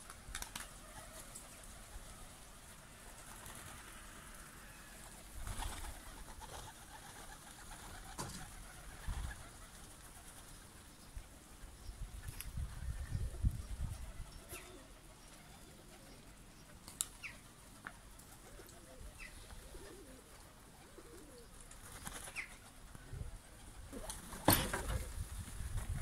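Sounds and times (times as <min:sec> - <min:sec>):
pigeons cooing: 0:12.9 - 0:25.1.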